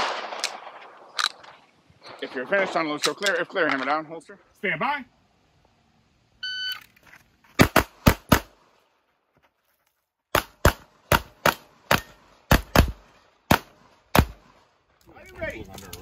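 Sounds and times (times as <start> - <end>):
pistol shots: 0.0 - 1.6, 7.6 - 8.6, 10.3 - 14.7.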